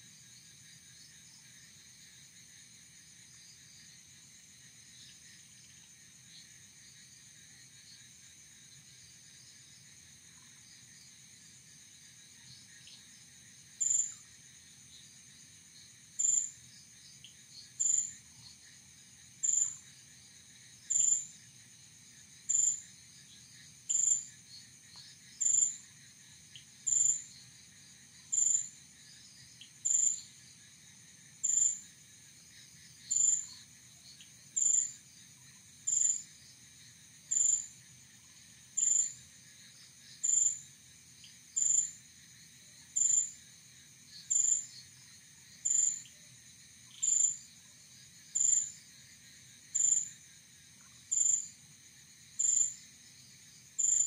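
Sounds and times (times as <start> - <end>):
insect drone: 0.0 - 54.0.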